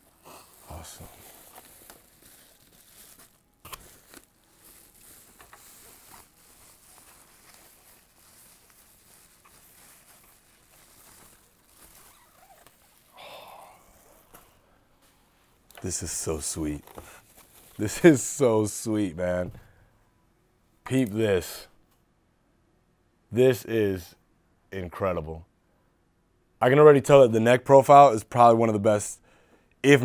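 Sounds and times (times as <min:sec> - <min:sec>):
plastic sleeve rustling and crinkling: 0:00.0 - 0:15.2, 0:15.8 - 0:18.9.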